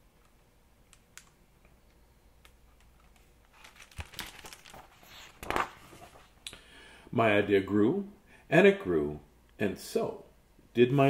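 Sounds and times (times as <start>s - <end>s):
faint book clicks: 2.4s - 6.6s
paper page rustling: 2.8s - 6.4s.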